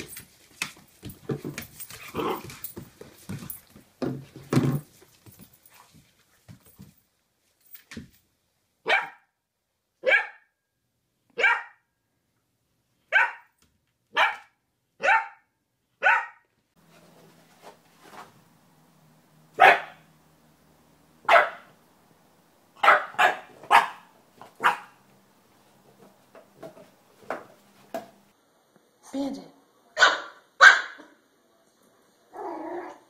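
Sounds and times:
puppy barking: 8.8s - 9.3s, 10.0s - 10.5s, 11.4s - 11.8s, 13.1s - 16.5s, 19.5s - 20.1s, 21.2s - 21.8s, 22.8s - 25.0s, 30.0s - 31.2s
second puppy barking louder: 22.8s - 25.0s, 30.0s - 31.1s.

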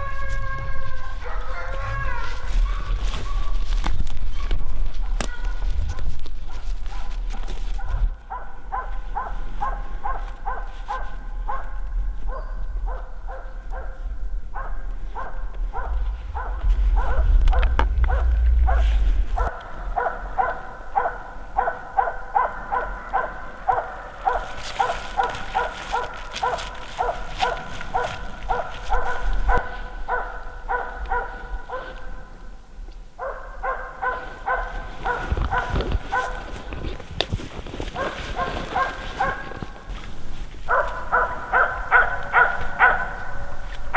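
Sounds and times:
dog barking rapidly: 6.5s - 32.1s, 33.2s - 36.5s, 38.0s - 39.5s, 40.7s - 43.6s
low microphone rumble: 11.2s - 24.4s, 27.0s - 33.6s.

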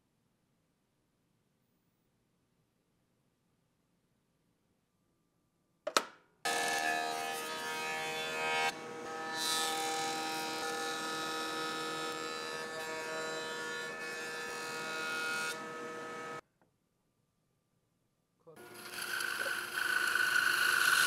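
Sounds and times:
cutterhead planing wood: 6.5s - 16.4s, 18.7s - 21.0s
jointer motor whine: 18.6s - 21.0s.

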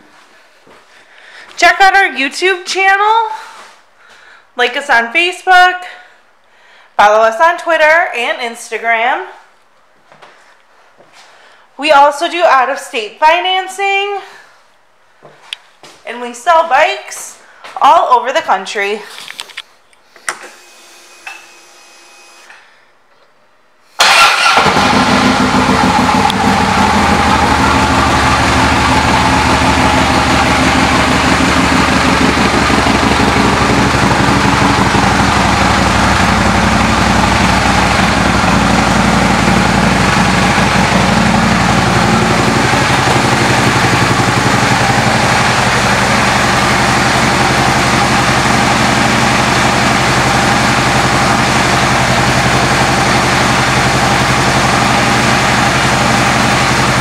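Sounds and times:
motorcycle engine starting and idling: 24.0s - 57.0s.

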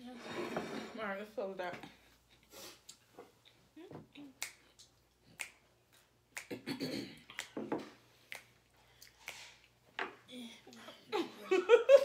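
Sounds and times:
fingers snapping: 4.4s - 5.6s.

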